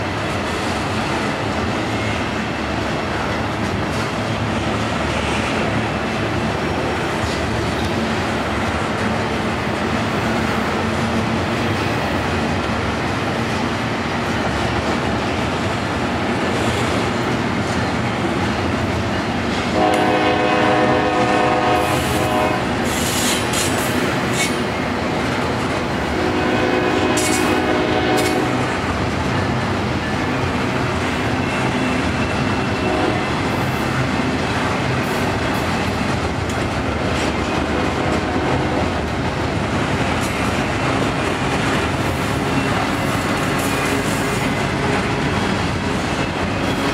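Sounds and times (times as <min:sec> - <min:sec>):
train rolling on rails: 0:00.0 - 0:46.9
train horn: 0:19.8 - 0:23.0, 0:26.1 - 0:28.8, 0:32.8 - 0:33.4, 0:37.9 - 0:38.9.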